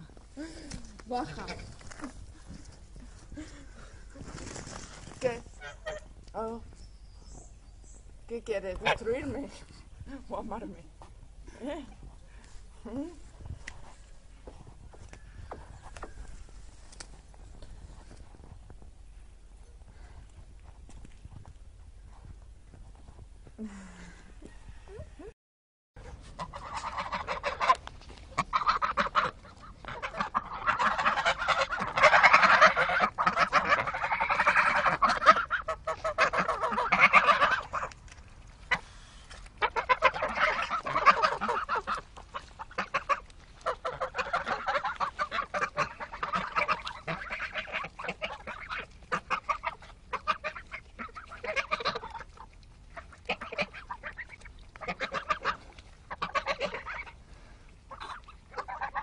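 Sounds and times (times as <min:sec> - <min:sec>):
geese honking and gabbling: 0:01.1 - 0:02.8, 0:03.8 - 0:06.2, 0:26.0 - 0:59.0.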